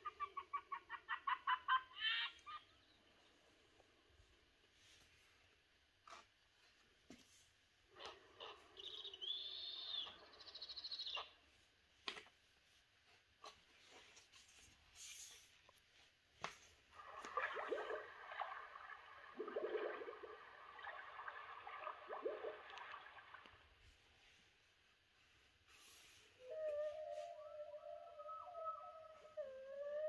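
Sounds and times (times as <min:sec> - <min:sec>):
chirping owl call from speaker: 0:08.4 - 0:11.4, 0:26.4 - 0:30.0
splashing underwater sound effect: 0:17.0 - 0:23.6.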